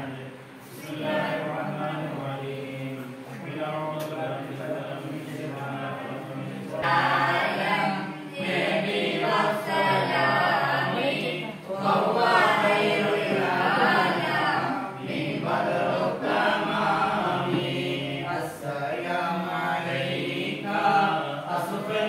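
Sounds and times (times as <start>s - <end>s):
men chanting together: 0.0s - 22.0s.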